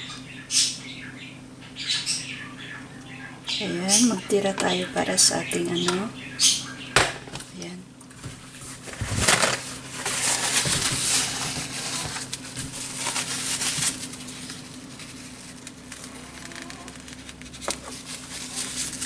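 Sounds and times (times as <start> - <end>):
low steady hum: 0.0 - 19.0
paper towel rustling and rubbing: 8.2 - 19.0.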